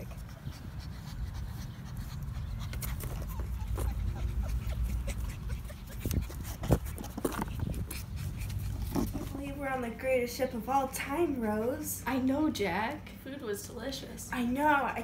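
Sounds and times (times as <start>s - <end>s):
puppy whimpers: 0.0s - 9.4s
puppies panting: 0.0s - 11.6s
steady low rumble: 0.0s - 11.6s.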